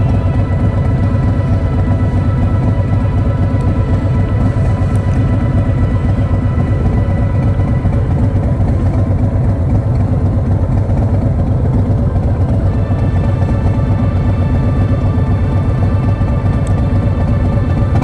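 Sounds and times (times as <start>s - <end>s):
motorcycle engine running: 0.0s - 18.0s
road and wind noise: 0.0s - 18.0s.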